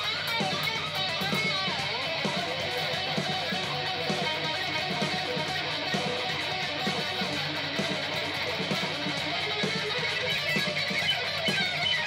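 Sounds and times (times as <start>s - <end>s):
distorted electric guitar: 0.0s - 12.0s.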